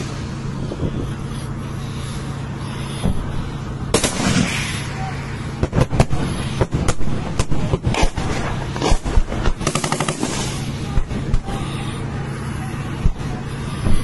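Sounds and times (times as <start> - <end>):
steady low drone: 0.0 - 14.0
automatic gunfire burst: 3.9 - 4.8, 5.6 - 10.8
single gunshots: 3.9 - 4.8.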